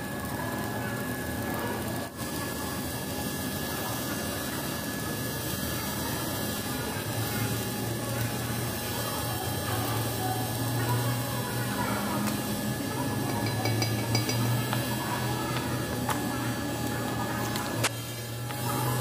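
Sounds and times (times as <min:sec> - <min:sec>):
electrical hum of workshop equipment: 0:00.0 - 0:19.0
light metallic clinks: 0:13.3 - 0:14.6.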